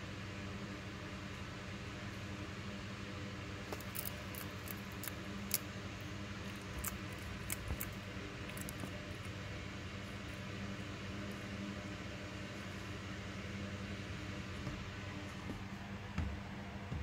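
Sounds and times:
low background hum: 0.0 - 17.0
lizard crunching insect: 3.6 - 10.6.

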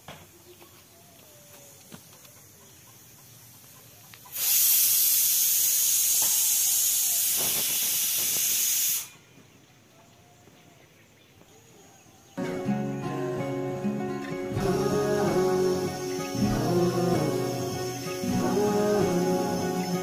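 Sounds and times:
high-pitched hiss: 2.9 - 9.4, 12.4 - 20.0.

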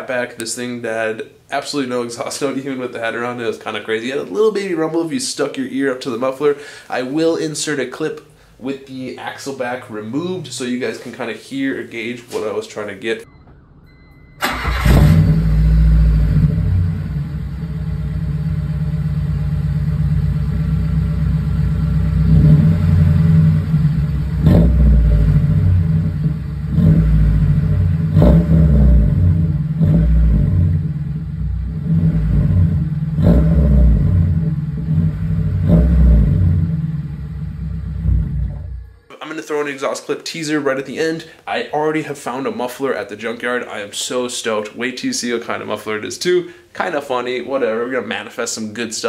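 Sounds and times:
car engine idling: 13.3 - 39.0
engine throttle blips: 13.3 - 39.1.

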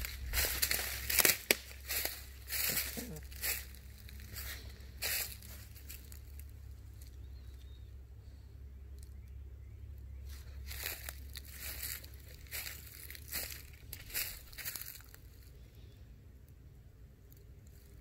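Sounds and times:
footsteps crunching through dry leaves: 0.0 - 7.1, 10.2 - 15.6.

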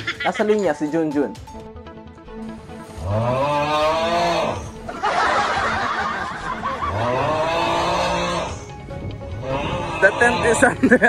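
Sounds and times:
men laughing: 0.0 - 0.7, 3.6 - 8.6, 9.4 - 11.0
gusty wind rushing: 5.3 - 10.8.

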